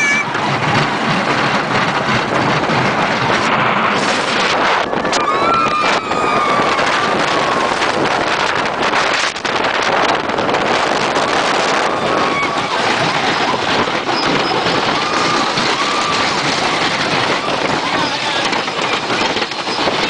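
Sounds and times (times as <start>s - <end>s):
roller coaster train rumbling on track: 0.0s - 20.0s
wind rushing over microphone: 0.0s - 20.0s
rider screaming: 5.0s - 7.8s.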